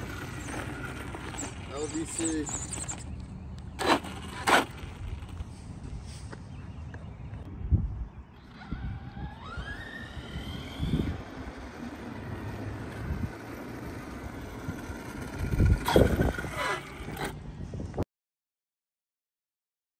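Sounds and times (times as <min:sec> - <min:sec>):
electric motor whining: 0:00.0 - 0:05.5, 0:08.4 - 0:17.4
tyre noise on asphalt: 0:00.0 - 0:07.4, 0:08.5 - 0:18.0.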